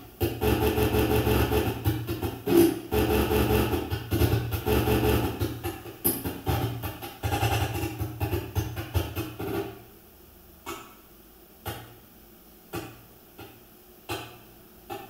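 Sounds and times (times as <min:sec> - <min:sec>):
sharp knocks: 0:00.2 - 0:09.8.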